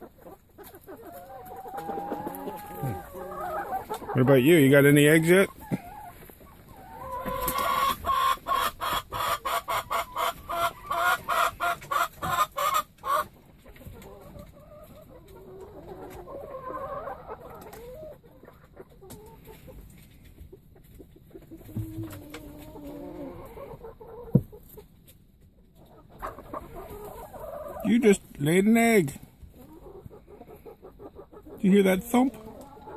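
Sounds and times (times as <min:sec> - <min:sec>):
hen clucking: 0:00.0 - 0:32.9.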